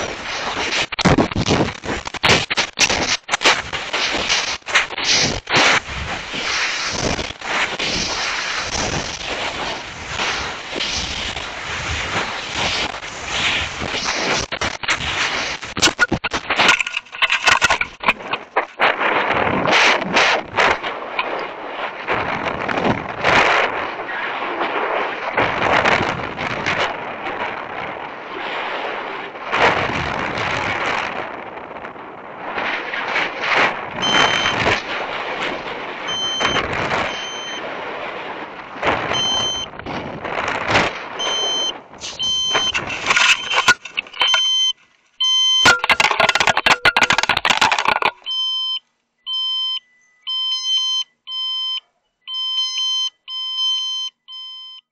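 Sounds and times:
electronic beeps: 15.8s - 18.1s, 34.0s - 34.6s, 36.1s - 37.6s, 39.2s - 39.7s, 41.2s - 54.9s.

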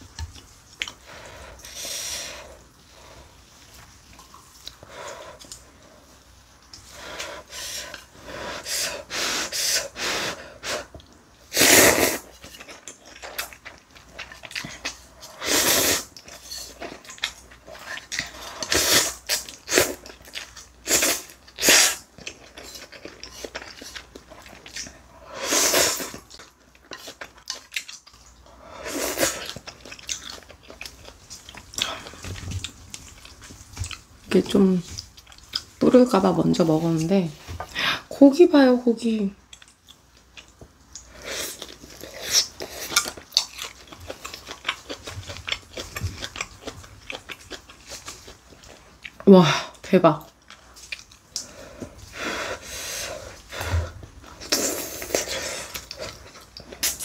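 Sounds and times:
chewing: 0.0s - 8.3s, 12.2s - 35.8s, 39.4s - 49.3s, 50.2s - 57.0s
slurping noodles: 11.5s - 12.5s, 15.3s - 16.8s, 17.8s - 20.0s, 25.2s - 26.3s.

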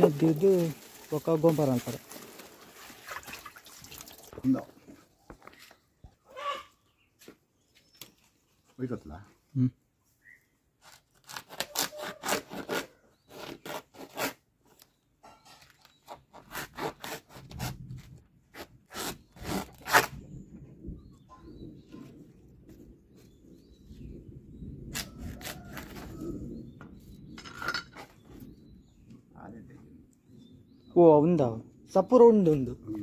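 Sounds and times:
blade scraping dry leaf sheath: 0.0s - 3.4s, 10.8s - 15.0s, 15.6s - 20.2s.

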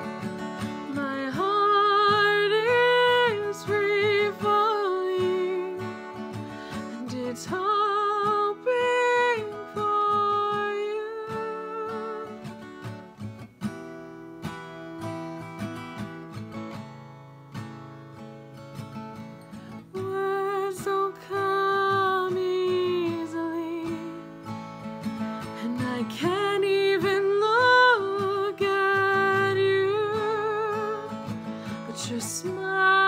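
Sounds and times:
woman singing: 0.0s - 12.6s, 19.8s - 24.5s, 25.2s - 33.0s
acoustic guitar strumming: 0.0s - 33.0s.

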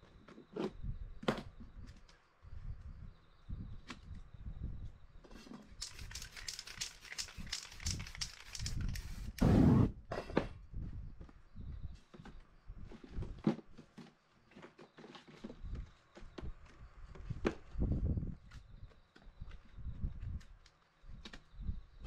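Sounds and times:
spray can hissing: 5.8s - 9.5s.

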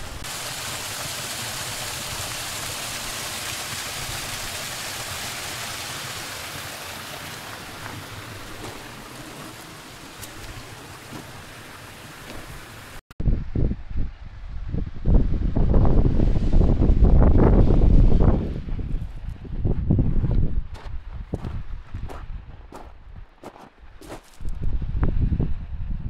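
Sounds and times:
mountain stream rushing: 0.0s - 13.0s.

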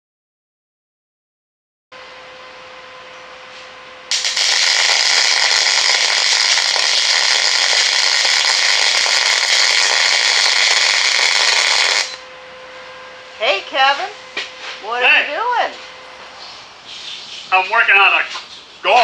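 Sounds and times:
welding arc crackling: 4.1s - 12.2s.

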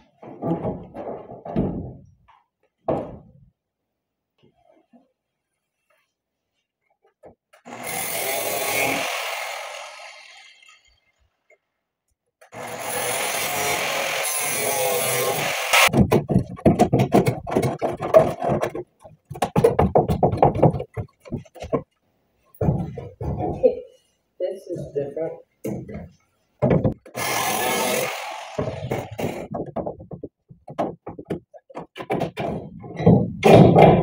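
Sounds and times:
metalworking power tool: 12.6s - 15.9s, 27.1s - 29.4s.

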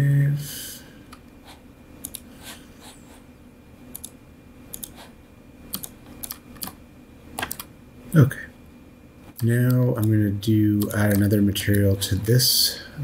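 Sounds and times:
mouse and keyboard clicks: 2.0s - 2.3s, 3.9s - 5.0s, 5.7s - 6.8s.

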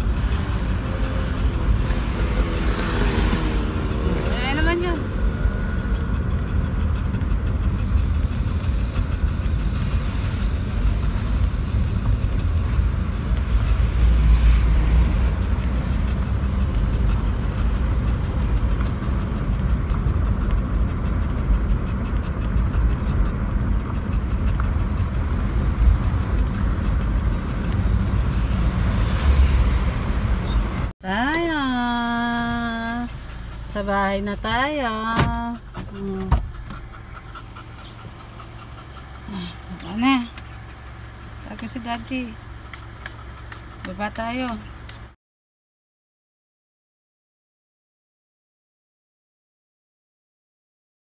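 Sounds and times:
car road and wind noise: 0.0s - 45.2s.

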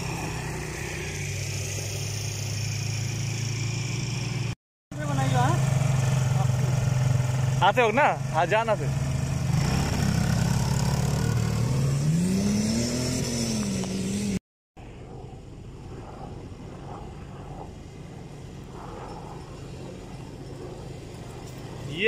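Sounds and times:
quad bike engine revving: 0.0s - 14.4s.

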